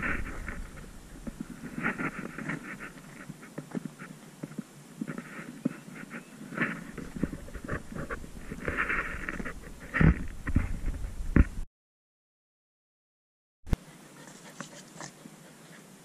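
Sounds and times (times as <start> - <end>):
dog panting: 13.8 - 16.0.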